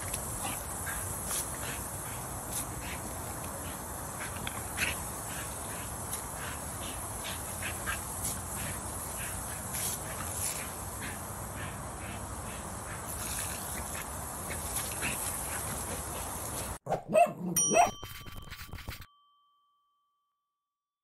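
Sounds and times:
hiss of water jet: 0.0s - 16.8s.

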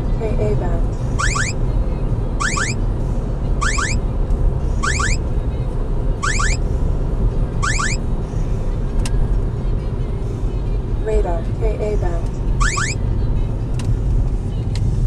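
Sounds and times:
car road noise: 0.0s - 15.0s
radar detector rising chirps: 1.2s - 1.6s, 2.4s - 2.8s, 3.6s - 4.0s, 4.8s - 5.2s, 6.2s - 6.6s, 7.6s - 8.0s, 12.6s - 13.0s.

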